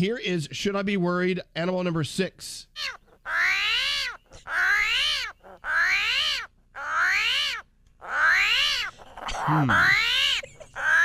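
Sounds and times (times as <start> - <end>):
armadillo crying: 2.7 - 11.0.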